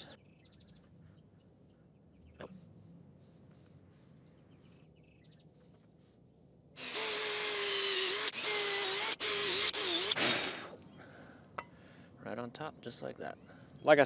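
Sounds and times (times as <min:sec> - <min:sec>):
power drill boring into wood: 0:06.8 - 0:10.8.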